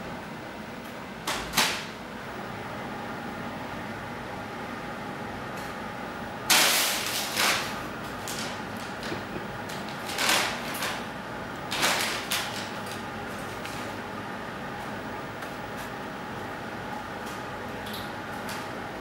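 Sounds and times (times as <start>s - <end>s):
paper bag crinkling and rustling: 7.0s - 11.0s, 11.7s - 13.0s.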